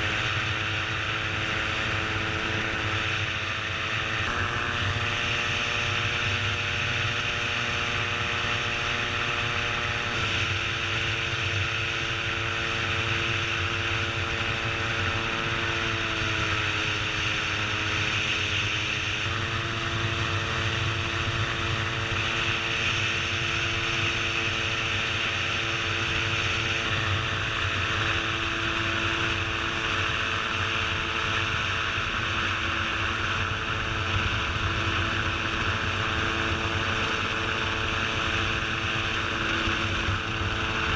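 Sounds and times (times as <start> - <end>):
gyroplane engine and propeller: 0.0 - 40.9
wind noise on microphone: 18.6 - 40.9.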